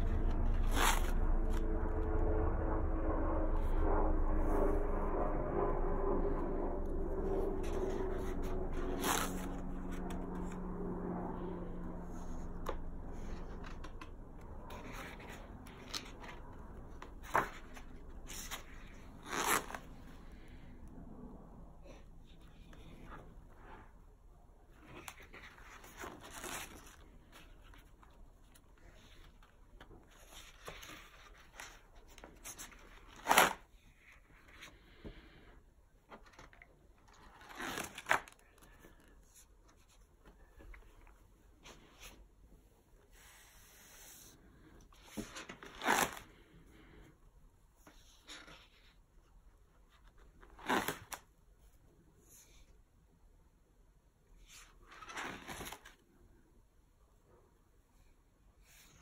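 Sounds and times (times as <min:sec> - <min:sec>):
page flipping swish: 0:00.0 - 0:01.6, 0:37.1 - 0:38.8, 0:54.5 - 0:56.0
page flapping: 0:14.7 - 0:20.0, 0:36.1 - 0:39.1, 0:54.9 - 0:56.0.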